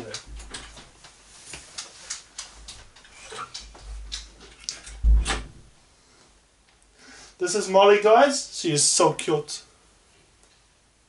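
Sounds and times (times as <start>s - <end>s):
light clicks and taps: 0.0s - 5.0s.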